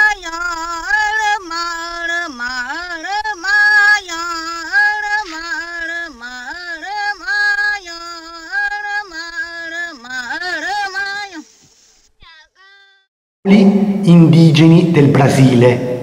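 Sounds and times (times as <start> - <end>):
person singing slow melody: 0.0 - 11.6.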